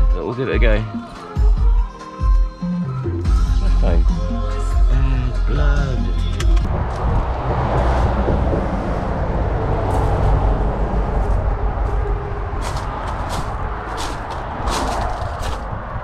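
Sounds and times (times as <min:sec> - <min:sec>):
steady low rumble: 0:06.6 - 0:16.0
footsteps crunching on gravel: 0:11.2 - 0:15.9.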